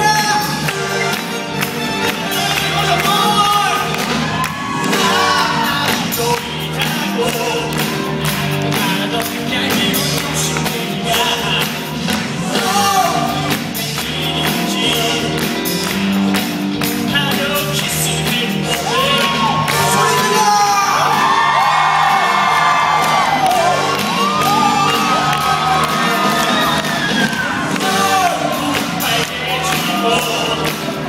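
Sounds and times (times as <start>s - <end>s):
pop backing track with beat: 0.0s - 31.0s
man singing into microphone: 4.9s - 8.0s, 8.7s - 15.5s, 17.1s - 21.0s, 27.7s - 31.0s.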